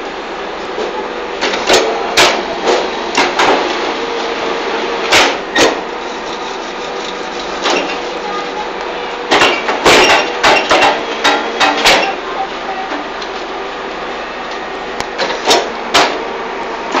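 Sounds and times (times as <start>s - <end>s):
brick making machine drone: 0.0s - 17.0s
sharp metallic clanks: 9.3s - 12.2s.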